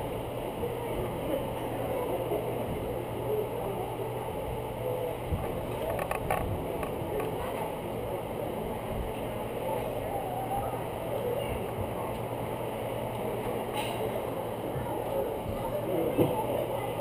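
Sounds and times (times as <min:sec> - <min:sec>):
camera rumbling and rubbing: 0:05.3 - 0:07.6.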